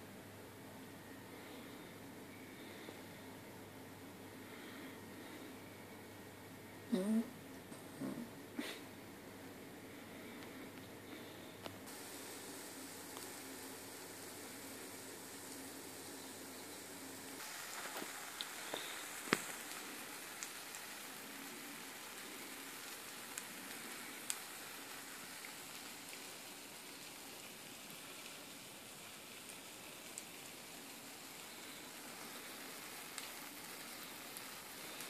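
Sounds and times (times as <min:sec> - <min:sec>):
pancake sizzling in a frying pan: 0:11.9 - 0:35.0.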